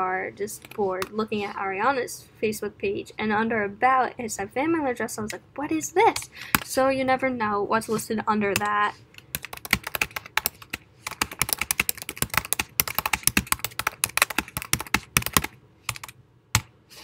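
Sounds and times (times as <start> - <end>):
computer keyboard typing: 8.6 - 16.7.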